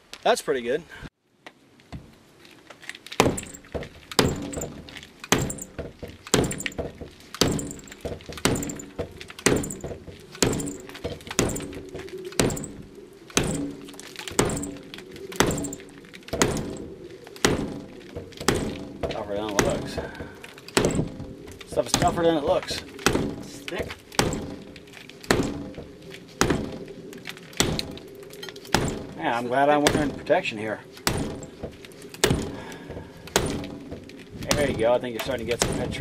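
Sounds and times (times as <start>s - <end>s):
tomahawk chopping into door: 3.2s - 11.8s, 24.2s - 24.6s.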